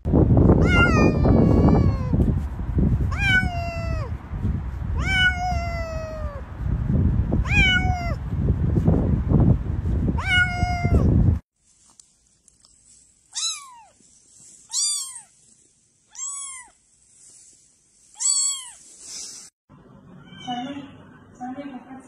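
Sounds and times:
cat meowing: 0:00.6 - 0:02.1, 0:03.1 - 0:04.1, 0:05.0 - 0:06.4, 0:07.4 - 0:08.2, 0:10.2 - 0:11.1, 0:13.3 - 0:14.0, 0:14.7 - 0:15.3, 0:16.1 - 0:16.8, 0:18.2 - 0:18.8, 0:20.2 - 0:20.8
kitten mewing: 0:00.6 - 0:02.1, 0:03.1 - 0:04.1, 0:05.0 - 0:06.4, 0:07.4 - 0:08.2, 0:10.2 - 0:11.1, 0:13.3 - 0:14.0, 0:14.7 - 0:15.3, 0:16.1 - 0:16.8, 0:18.2 - 0:18.8.

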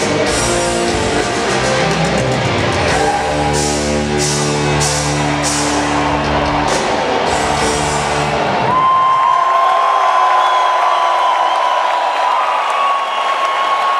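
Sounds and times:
rock band holding a chord: 0:00.0 - 0:08.8
drum and cymbal hits: 0:00.0 - 0:08.9
crowd cheering: 0:00.0 - 0:13.9
long shrill whistle: 0:10.2 - 0:12.0.

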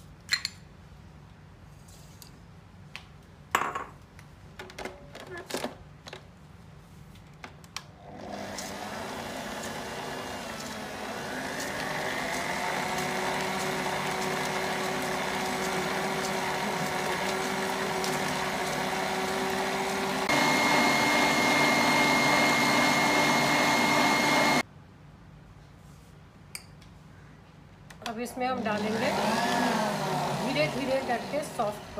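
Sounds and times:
stand mixer whisking: 0:08.2 - 0:24.6, 0:28.8 - 0:31.9.

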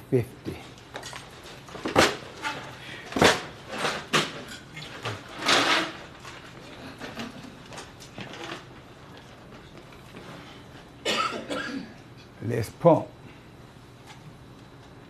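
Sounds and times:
metal folding chairs scraping: 0:01.0 - 0:10.6.

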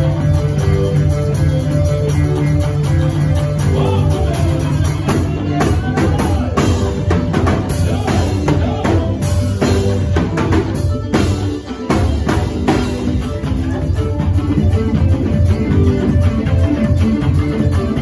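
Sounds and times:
bass line: 0:00.0 - 0:18.0
drum kit beat: 0:00.0 - 0:18.0
guitar: 0:00.0 - 0:18.0.

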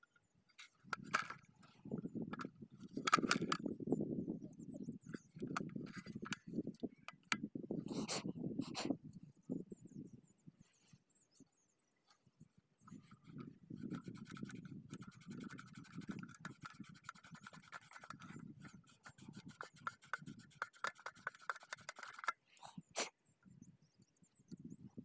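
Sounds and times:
scratchy rubbing of metal rings: 0:12.9 - 0:22.4.

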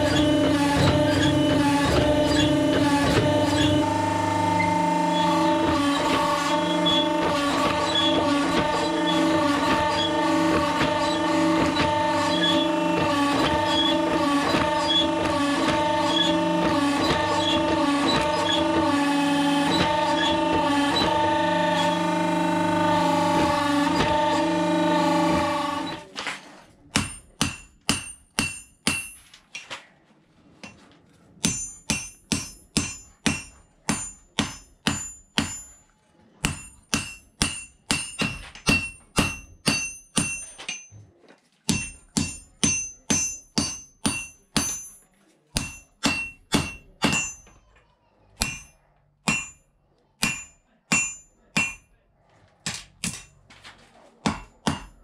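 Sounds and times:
hammer striking steel on anvil: 0:19.7 - 0:26.0, 0:26.9 - 0:29.3, 0:31.4 - 0:41.0, 0:41.7 - 0:47.6, 0:48.4 - 0:49.6, 0:50.2 - 0:51.9, 0:52.7 - 0:53.4, 0:54.2 - 0:55.0.

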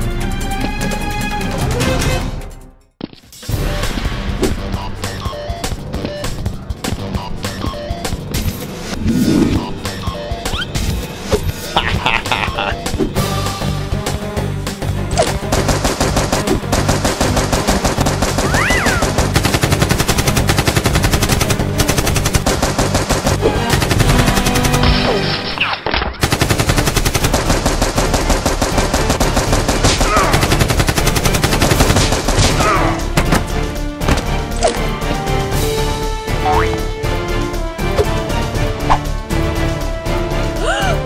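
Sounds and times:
action music: 0:00.0 - 0:41.0
rapid automatic gunfire: 0:15.4 - 0:25.0, 0:26.2 - 0:32.8.

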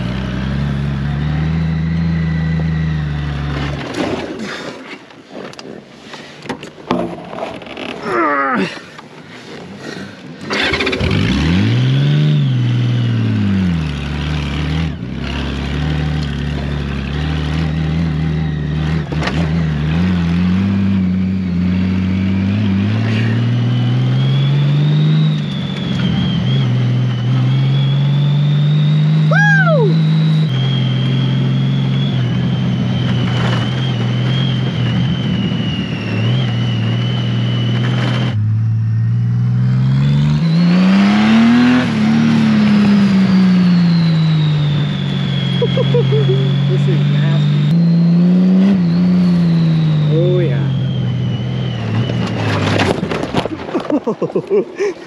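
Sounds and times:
motorcycle engine running: 0:00.0 - 0:03.9.

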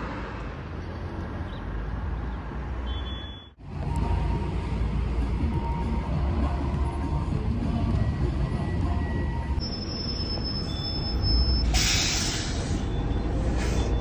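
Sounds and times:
bus engine rumbling: 0:00.0 - 0:14.0
pneumatic air hiss: 0:11.6 - 0:12.9, 0:13.5 - 0:13.9.

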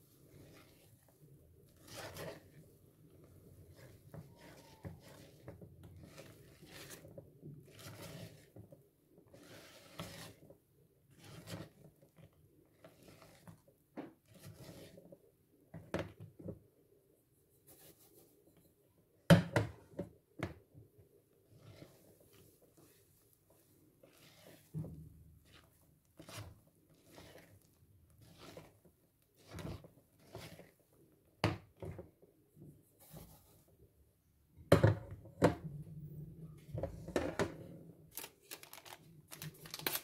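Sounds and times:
spatula scraping bowl: 0:00.2 - 0:10.5, 0:11.1 - 0:13.6, 0:14.2 - 0:15.2, 0:21.4 - 0:31.0.

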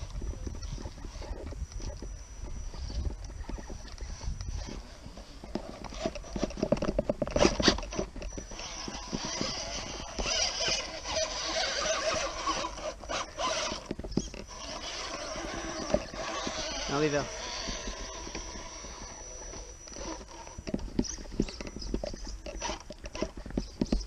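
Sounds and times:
motor and gears whining: 0:00.0 - 0:24.0.

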